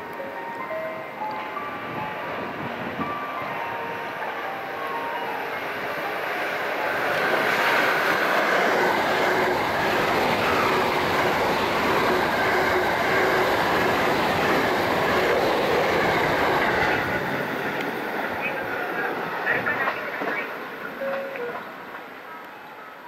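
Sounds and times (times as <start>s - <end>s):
train wheels on rails: 5.6s - 23.0s.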